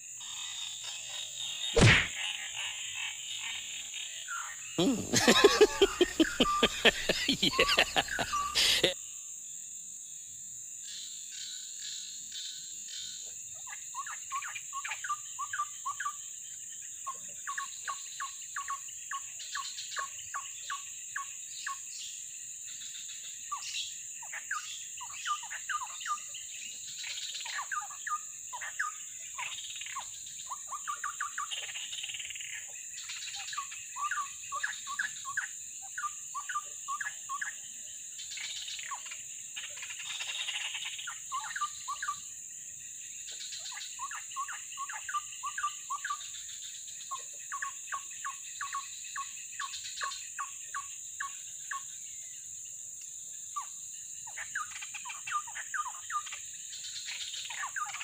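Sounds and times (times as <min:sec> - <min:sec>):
sharp knock: 0:01.8 - 0:02.1
high insect drone: 0:04.3 - 0:58.0.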